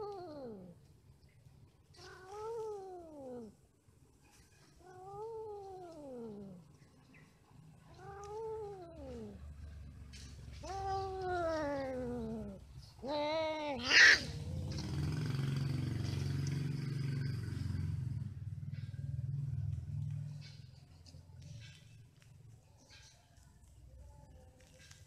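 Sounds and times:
cat yowling and shrieking: 0:10.6 - 0:14.4.

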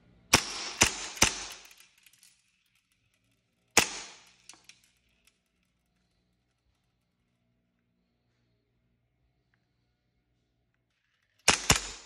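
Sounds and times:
airsoft pistol shots: 0:00.3 - 0:01.7, 0:03.8 - 0:04.3, 0:11.5 - 0:12.0.

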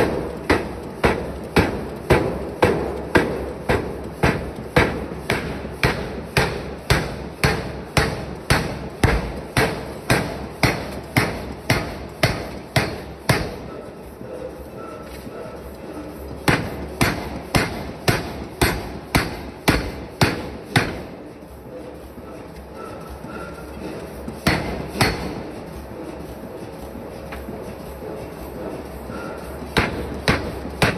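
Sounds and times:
power hammer striking steel: 0:00.0 - 0:13.8, 0:16.4 - 0:21.2, 0:24.4 - 0:25.6, 0:29.8 - 0:30.9.

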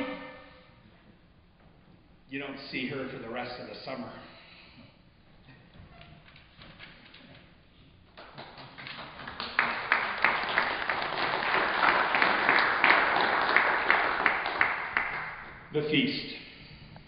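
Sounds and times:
audience applauding: 0:08.2 - 0:15.6.

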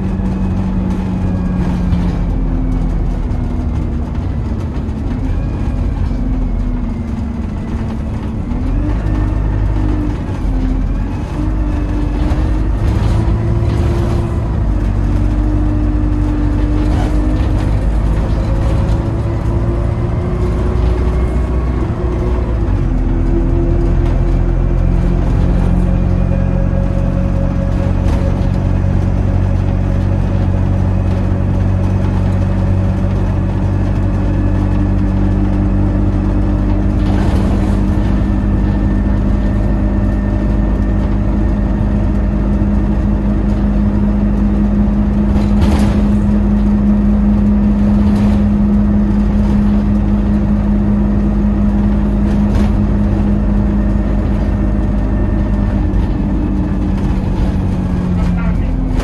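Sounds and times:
bus body knocks and rattles: 0:00.0 - 0:59.0
bus engine hum: 0:00.0 - 0:59.0.

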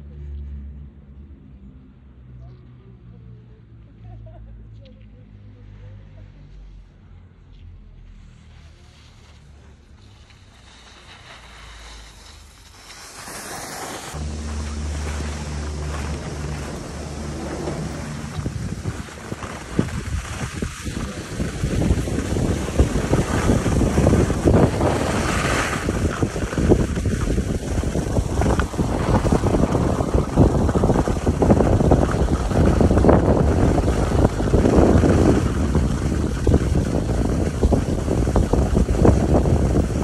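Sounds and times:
skis sliding on snow: 0:08.2 - 0:40.0
wind buffeting microphone: 0:14.0 - 0:40.0.

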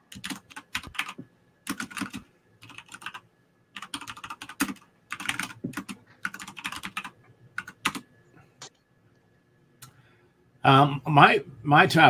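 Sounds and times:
keyboard typing: 0:00.1 - 0:03.2, 0:03.8 - 0:08.1.

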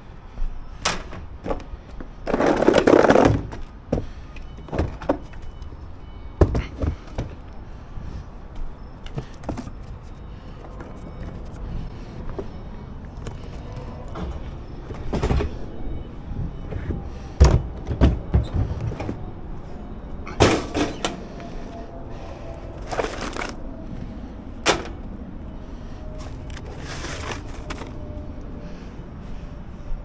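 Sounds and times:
knocks and clunks: 0:16.4 - 0:19.3.

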